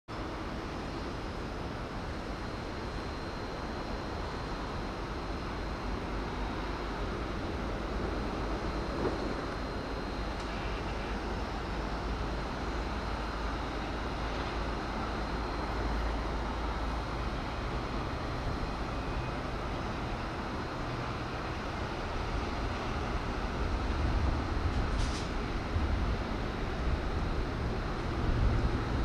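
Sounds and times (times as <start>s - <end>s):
broad hiss: 24.7s - 25.5s.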